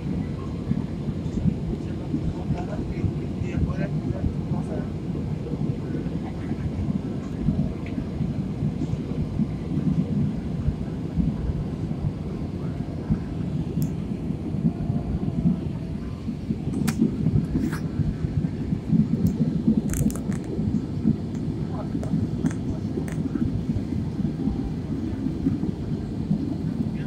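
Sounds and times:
airliner cabin rumble: 0.0 - 27.0
faint clicks: 21.3 - 23.3.

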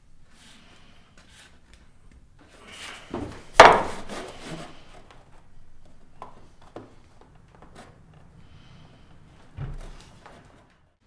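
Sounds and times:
sharp wooden knock: 3.6 - 4.2.

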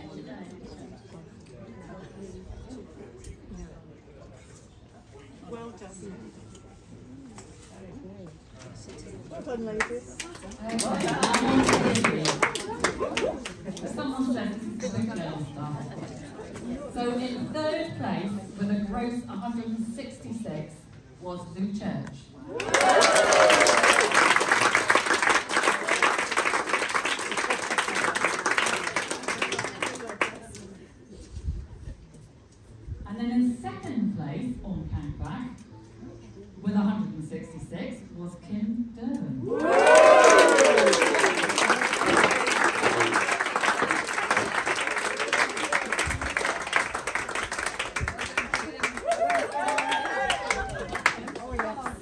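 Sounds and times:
crowd applauding: 9.8 - 13.7, 22.5 - 30.4, 39.5 - 52.0.

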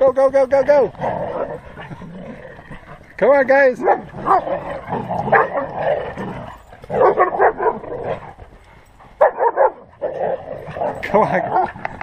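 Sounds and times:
dog barking and yelping: 3.8 - 8.3, 9.2 - 11.8.

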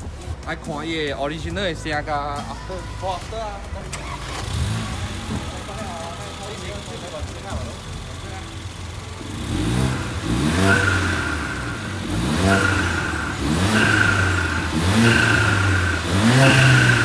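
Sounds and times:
car engine revving: 3.2 - 17.0.

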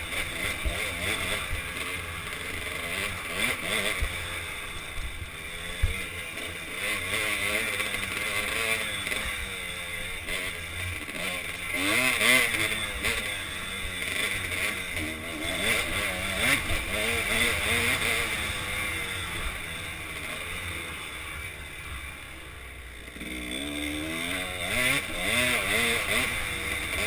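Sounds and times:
dirt bike engine revving: 0.0 - 27.0.

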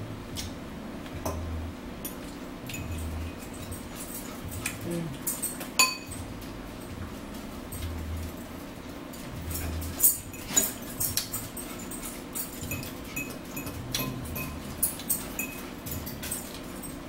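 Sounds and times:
forks clinking on plate: 2.0 - 6.2, 9.1 - 17.0.

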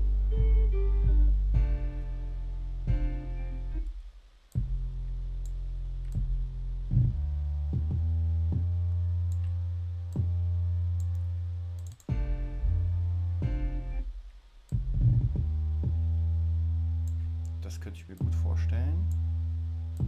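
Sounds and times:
synthesized bass line: 0.0 - 4.0, 4.6 - 14.1, 14.8 - 20.0
faint clicks: 11.8 - 12.1.

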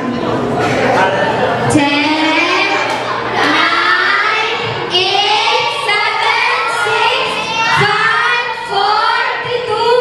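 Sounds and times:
children singing: 2.2 - 10.0.

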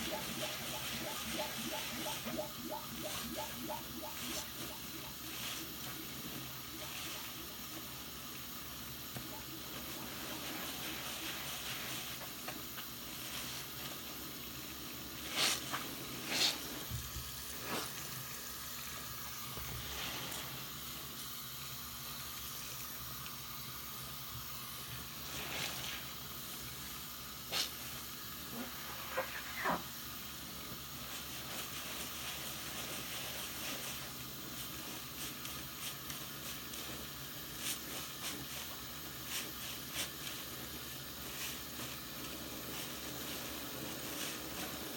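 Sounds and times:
sponge squishing in wet hands: 0.0 - 44.9
fizz of lather: 14.0 - 31.8.

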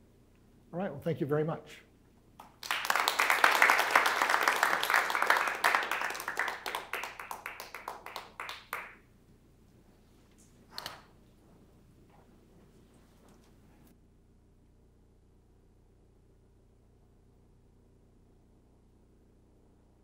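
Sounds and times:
audience applauding: 2.4 - 9.0.

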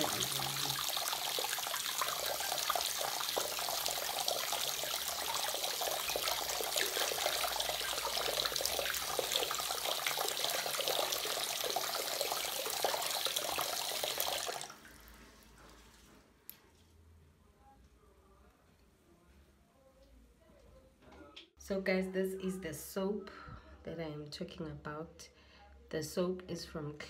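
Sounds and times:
water splashing into sink: 0.0 - 15.2.

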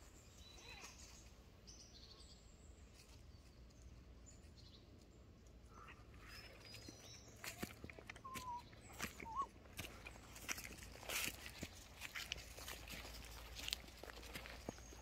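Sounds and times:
faint forest ambience: 0.0 - 15.0.

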